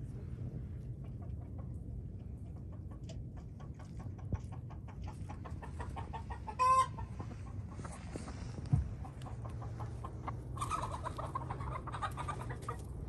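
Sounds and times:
chickens clucking: 0.8 - 13.0
chicken squawk: 5.4 - 8.4, 9.0 - 12.8.

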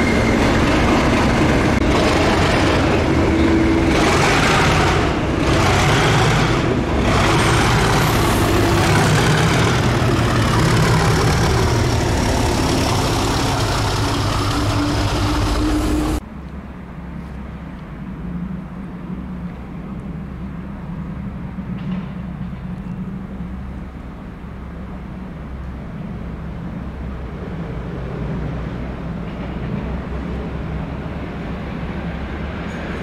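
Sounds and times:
diesel locomotive engine: 0.0 - 33.0
distant locomotive hum: 0.0 - 33.0
wheel and rail noise: 0.0 - 33.0.

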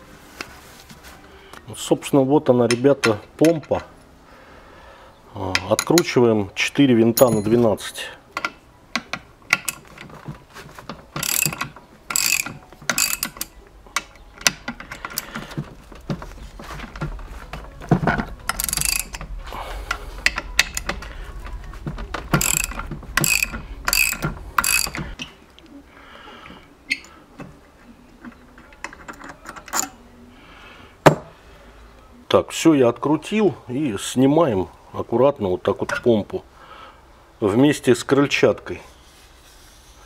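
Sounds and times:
ratchet wrench clicking: 11.2 - 13.5, 18.5 - 19.3, 22.4 - 25.1.

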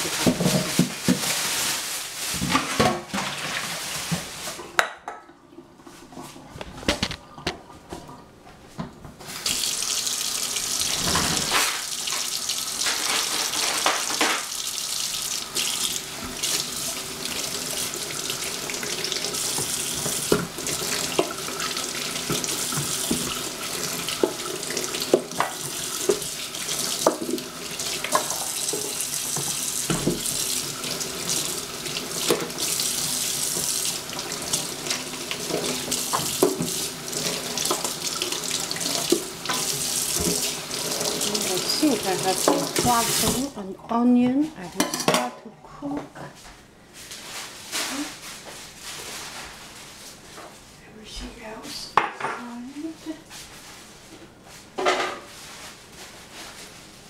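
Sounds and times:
tap running into sink: 17.9 - 43.5.

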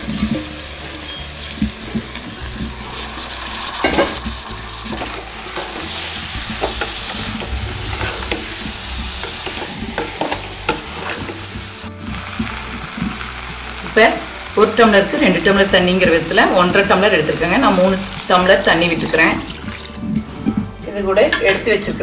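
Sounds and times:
ladle scraping and knocking pot: 0.0 - 12.6
hot oil sizzling: 0.0 - 22.0.

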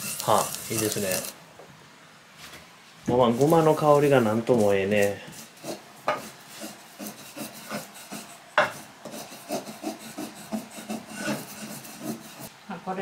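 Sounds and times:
gritty scraping of seeds grinding: 0.0 - 1.4, 3.3 - 8.3.

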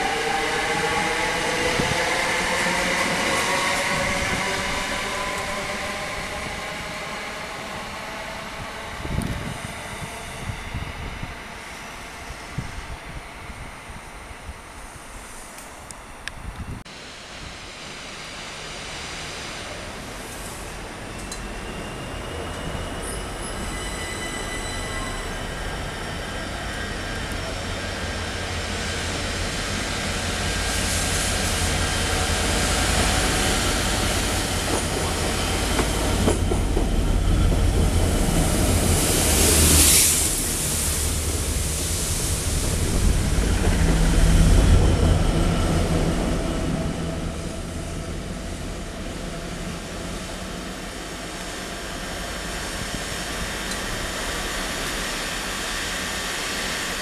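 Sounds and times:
train wheels rolling over rails: 26.0 - 47.6.

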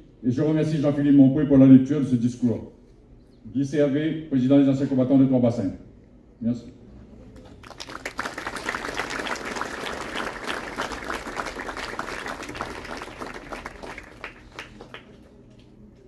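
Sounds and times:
crowd clapping: 7.4 - 15.9.

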